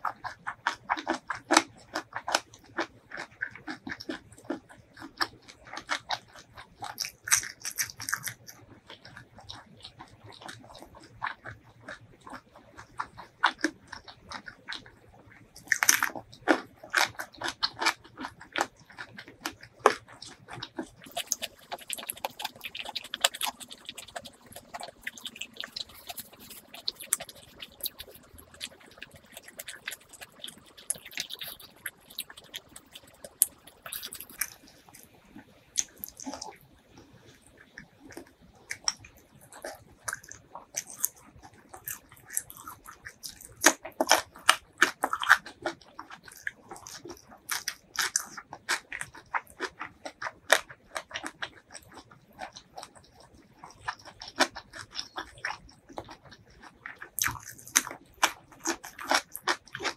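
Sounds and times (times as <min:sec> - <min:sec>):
chewing with crunches: 0:00.0 - 0:59.9
wet mouth clicks: 0:00.0 - 0:59.9
biting into cucumber: 0:15.6 - 0:35.1, 0:35.8 - 0:59.9.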